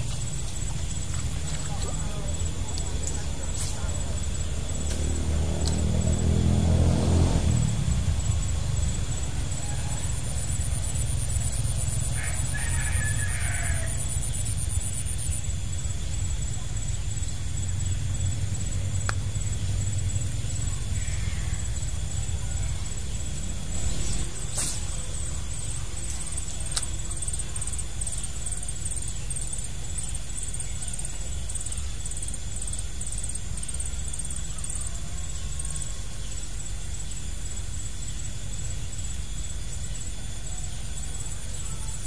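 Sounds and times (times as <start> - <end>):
steady low rumble: 0.0 - 12.6, 13.7 - 34.4.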